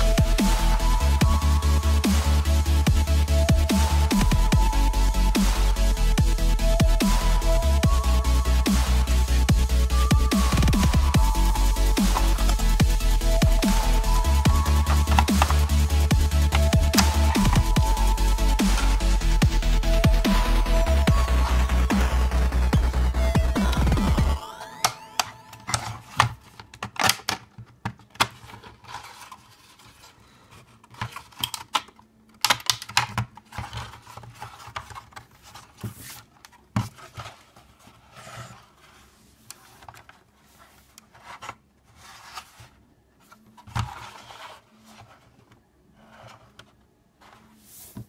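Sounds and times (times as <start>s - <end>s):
plastic parts clicking and rubbing: 10.5s - 20.7s, 23.4s - 48.0s.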